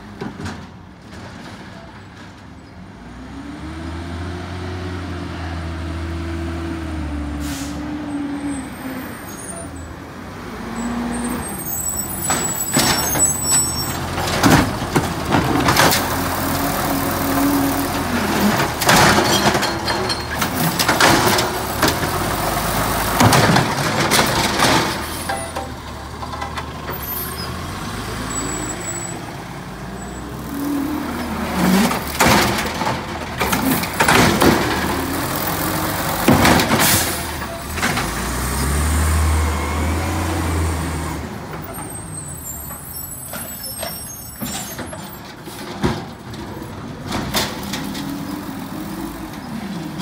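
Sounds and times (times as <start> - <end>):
garbage truck engine: 0.0 - 50.0
air brake hiss: 7.4 - 8.0
high brake squeal: 7.4 - 9.9, 10.8 - 14.1, 27.0 - 27.6, 28.2 - 29.3, 41.7 - 45.2.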